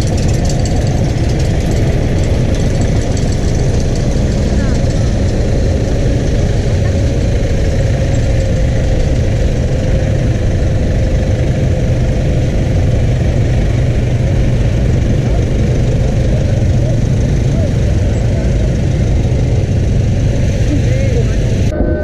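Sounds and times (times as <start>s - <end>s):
low engine rumble: 0.0s - 22.0s.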